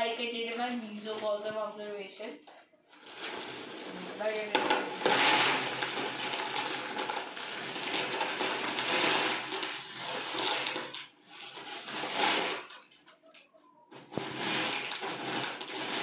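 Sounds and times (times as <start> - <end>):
plastic bag crinkling: 2.9 - 13.2, 14.0 - 16.0.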